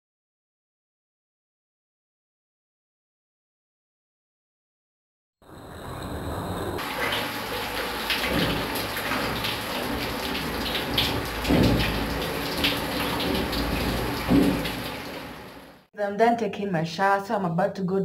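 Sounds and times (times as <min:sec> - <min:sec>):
shower water running: 0:05.4 - 0:15.9.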